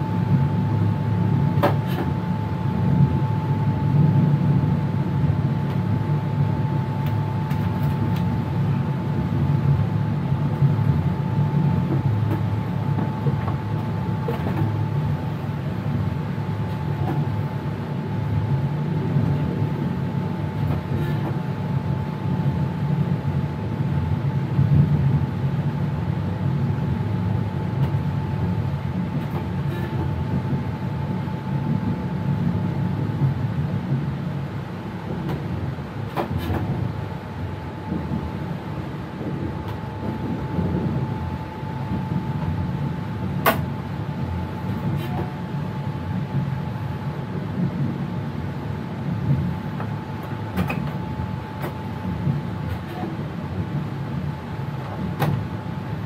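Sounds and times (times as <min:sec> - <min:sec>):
train wheels rumbling: 0:00.0 - 0:56.0.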